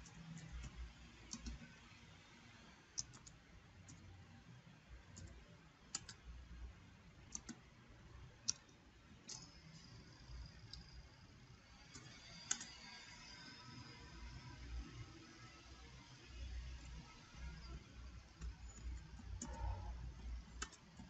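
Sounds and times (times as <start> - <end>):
keyboard typing clicks: 0.0 - 1.7, 3.0 - 4.0, 5.1 - 6.2, 7.3 - 7.6, 8.4 - 9.6, 11.9 - 12.8, 17.6 - 21.0.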